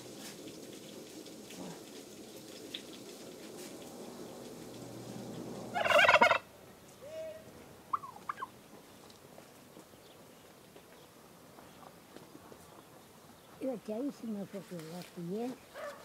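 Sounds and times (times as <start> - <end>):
turkey gobbling: 5.7 - 6.5, 7.9 - 8.6.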